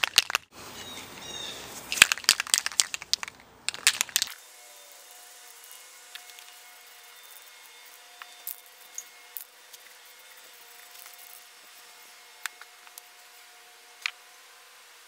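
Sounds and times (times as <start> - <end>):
spray can spitting: 1.8 - 4.4.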